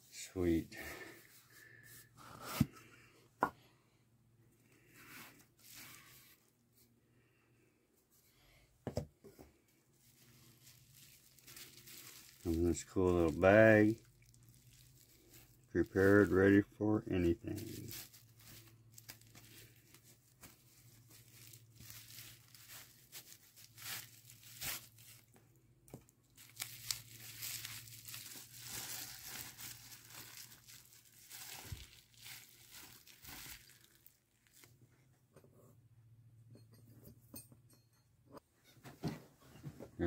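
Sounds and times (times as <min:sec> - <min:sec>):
bubble wrap crinkling: 0:05.2 - 0:06.4, 0:10.0 - 0:34.8.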